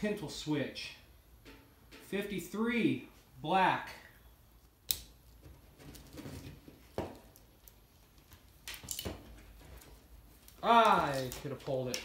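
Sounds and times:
wire rustling: 0:04.4 - 0:12.0.

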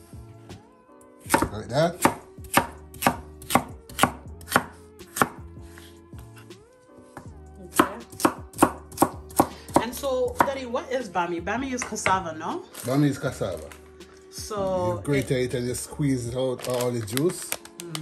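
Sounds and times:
knife chopping on wooden board: 0:01.2 - 0:06.3, 0:07.1 - 0:10.6.

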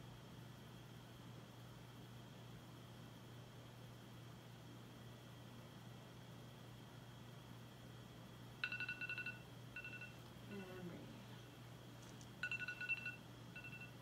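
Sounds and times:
trilling two-tone electronic beep: 0:08.6 - 0:10.8, 0:12.4 - 0:14.0.

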